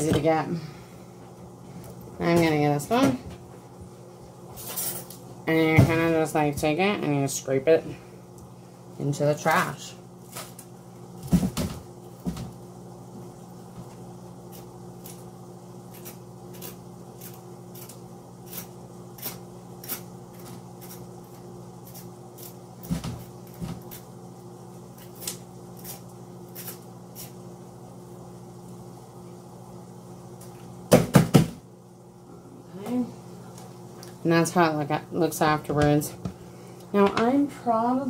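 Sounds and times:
steady low hum: 0:00.0 - 0:38.0.

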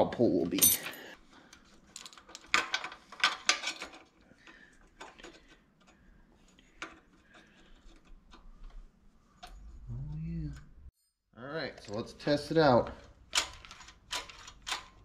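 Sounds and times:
small metal parts clicking: 0:13.0 - 0:15.0.

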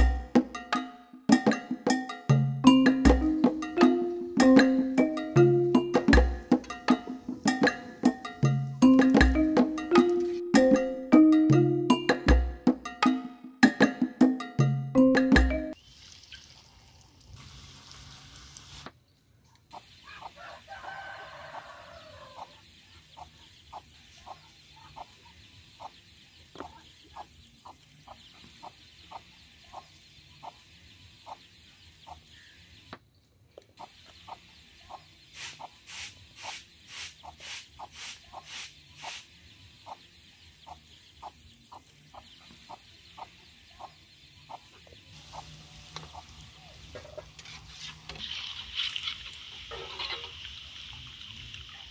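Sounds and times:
oil sizzling in a frying pan: 0:15.8 - 0:18.9, 0:45.2 - 0:51.9
chickens clucking: 0:19.6 - 0:32.4, 0:33.6 - 0:39.2, 0:39.8 - 0:51.9.

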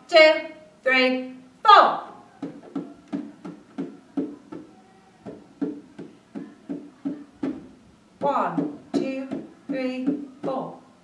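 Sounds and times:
hand drum played lightly: 0:02.4 - 0:10.7.

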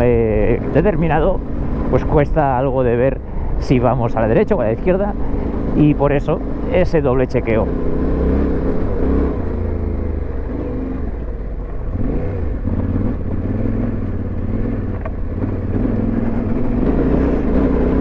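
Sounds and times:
motorcycle engine revving: 0:04.2 - 0:18.0.

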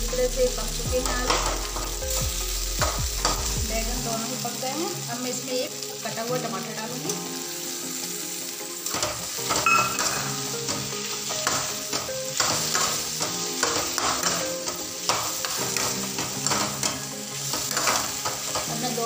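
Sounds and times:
background music: 0:00.0 - 0:19.0
vegetables sizzling in a pan: 0:00.0 - 0:19.0
metal ladle scraping a pan: 0:08.9 - 0:19.0.

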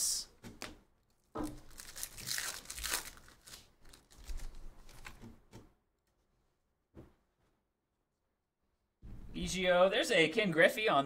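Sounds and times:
foil wrapper crinkling and tearing: 0:01.1 - 0:05.2.

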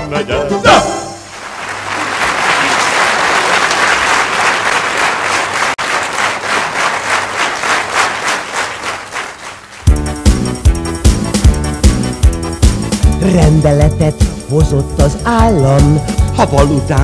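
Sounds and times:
band music: 0:00.0 - 0:01.3, 0:09.7 - 0:17.0
audience applauding: 0:01.3 - 0:10.4.

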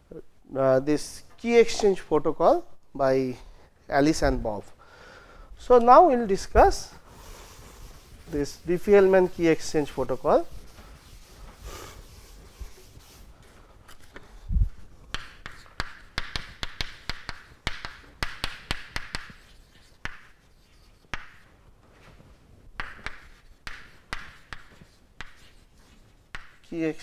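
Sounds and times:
chalk writing on a chalkboard: 0:07.2 - 0:14.4, 0:15.1 - 0:21.5, 0:22.8 - 0:26.8.

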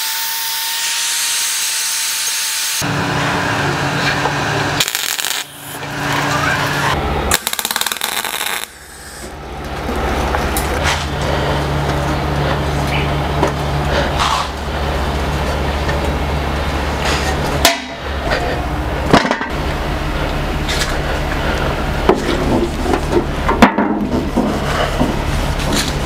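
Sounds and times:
welding arc crackling and buzzing: 0:00.0 - 0:12.1
steady low hum: 0:02.8 - 0:26.0.

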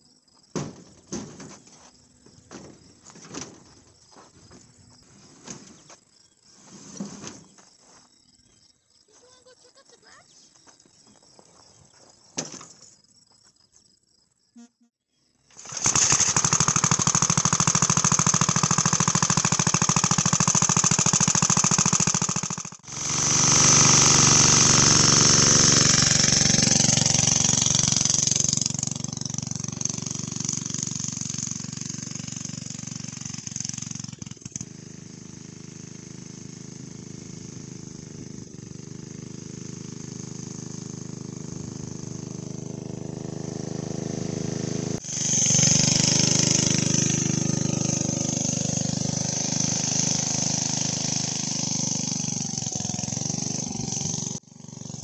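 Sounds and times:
go-kart engine running: 0:15.5 - 0:55.0.

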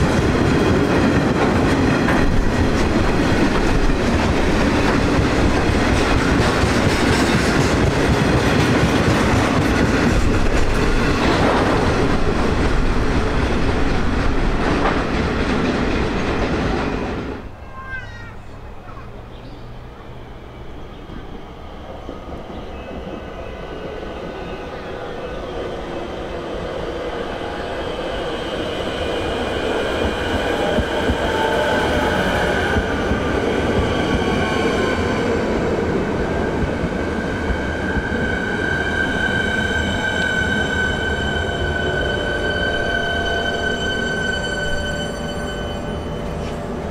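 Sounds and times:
electric train rumble: 0:00.0 - 0:46.9
high-pitched braking tones: 0:38.8 - 0:46.6.

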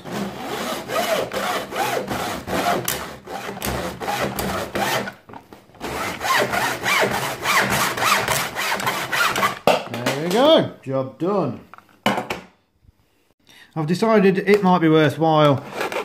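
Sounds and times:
hacksaw cutting plastic: 0:00.0 - 0:09.7, 0:15.5 - 0:16.0.

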